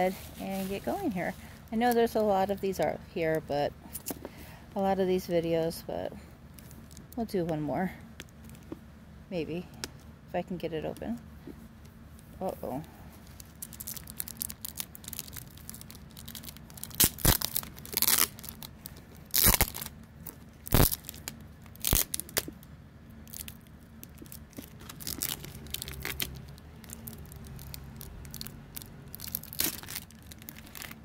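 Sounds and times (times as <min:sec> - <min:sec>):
plastic packaging tearing and crinkling: 0:13.2 - 0:31.0.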